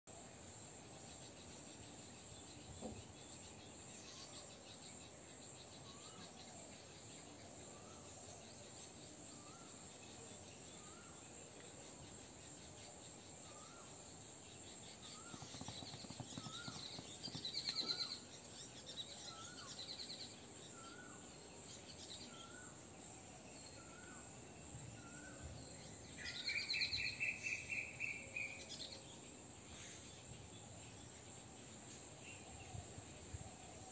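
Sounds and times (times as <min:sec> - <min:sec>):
high insect drone: 0:00.2 - 0:33.9
loud bird chirps and trill: 0:12.2 - 0:22.8.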